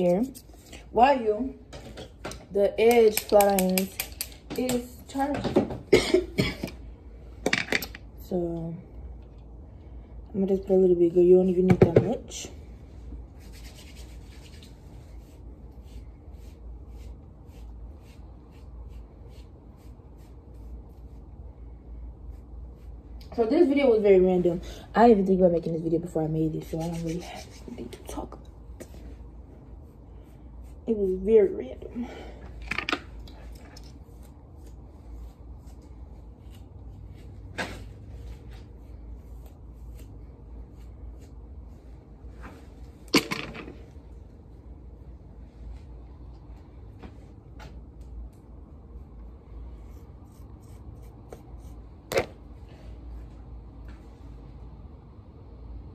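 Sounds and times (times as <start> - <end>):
low steady hum: 0.0 - 55.9
rubbing strokes against hair: 13.0 - 21.3, 26.4 - 31.7, 33.4 - 43.0.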